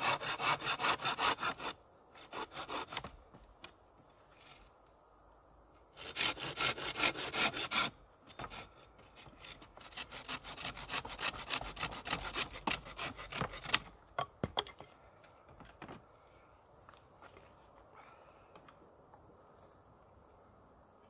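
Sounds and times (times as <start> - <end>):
hand saw cutting wood: 0.0 - 3.2, 5.9 - 13.9.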